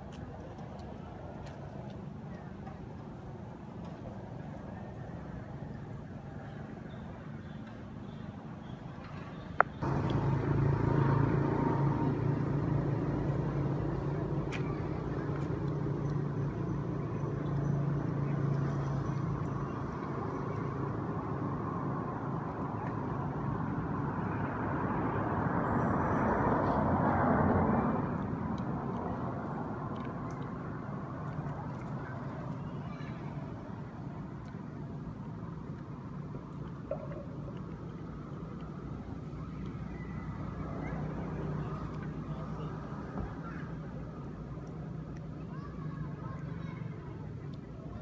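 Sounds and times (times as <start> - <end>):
motor engine humming: 9.8 - 21.6.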